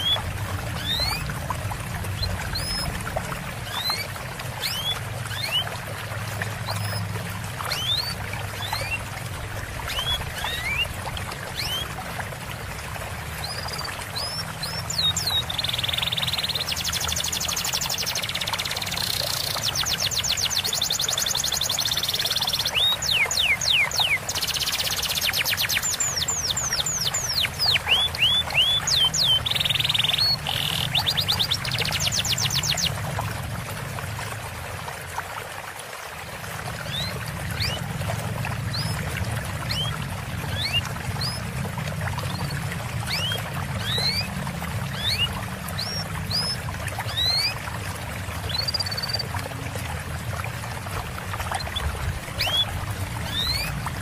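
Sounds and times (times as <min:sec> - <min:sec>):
small birds chirping and trilling: 0:00.0 - 0:01.3, 0:03.6 - 0:05.7, 0:06.6 - 0:09.0, 0:09.8 - 0:11.9, 0:13.4 - 0:33.0, 0:36.8 - 0:37.9, 0:38.6 - 0:41.5, 0:42.1 - 0:47.6, 0:48.4 - 0:49.4, 0:51.4 - 0:53.8
running water trickling: 0:00.0 - 0:54.0.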